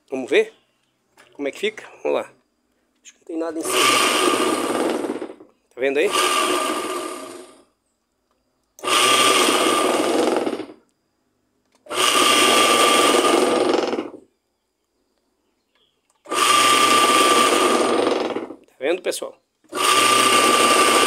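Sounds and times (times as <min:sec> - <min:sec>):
electric motor hum and whine: 0:03.5 - 0:05.4, 0:06.0 - 0:07.7, 0:08.8 - 0:10.8, 0:11.9 - 0:14.3, 0:16.3 - 0:18.6, 0:19.7 - 0:21.0.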